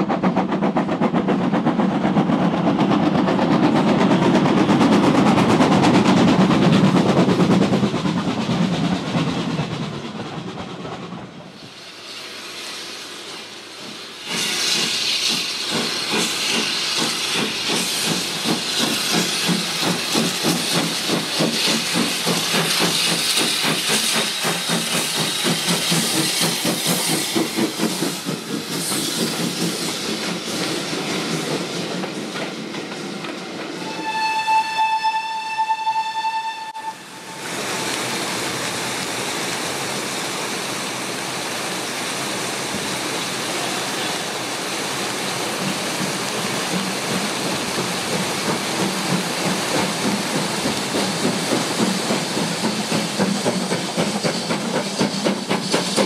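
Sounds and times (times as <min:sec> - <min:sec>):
steam locomotive exhaust beats: 0:00.0 - 0:41.0, 0:41.9 - 0:56.0
steady rushing hiss: 0:11.2 - 0:33.8, 0:37.0 - 0:56.0
loud steam hiss: 0:11.2 - 0:34.8, 0:36.2 - 0:56.0
steam whistle blast: 0:33.8 - 0:37.5.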